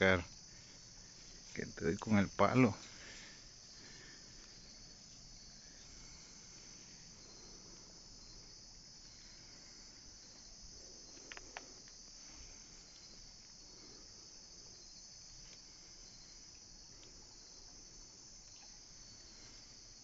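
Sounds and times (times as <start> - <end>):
crickets and night insects chirping: 0.0 - 20.0
faint sharp clicks: 11.1 - 12.0.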